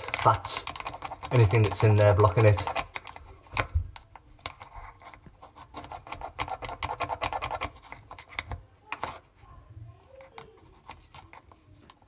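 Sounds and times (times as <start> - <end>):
metal key scraping and clicking on plastic: 0.0 - 5.2.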